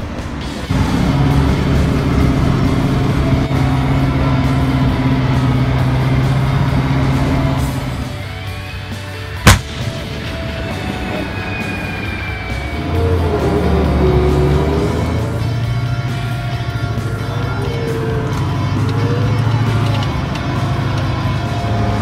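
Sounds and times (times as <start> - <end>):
background music: 0.0 - 22.0
tank gun firing blast: 9.4 - 10.5.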